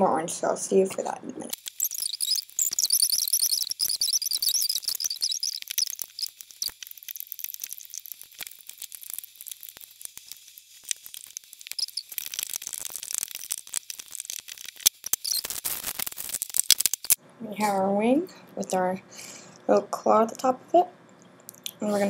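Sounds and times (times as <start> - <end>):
rubber bands clicking and rustling: 1.5 - 17.2.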